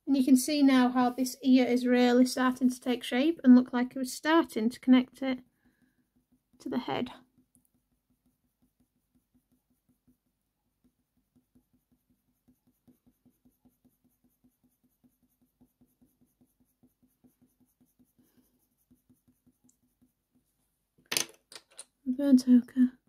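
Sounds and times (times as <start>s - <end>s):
pencil scratching on paper: 5.0s - 20.6s.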